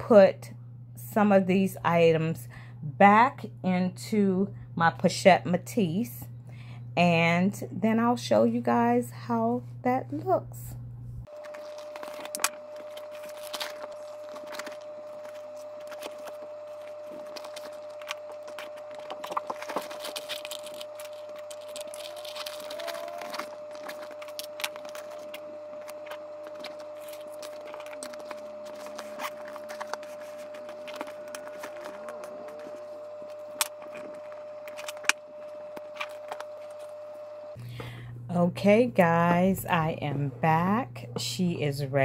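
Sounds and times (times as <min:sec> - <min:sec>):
faint steady hum: 0:00.0 - 0:42.0
items clicking and rustling in handbag: 0:11.3 - 0:36.9.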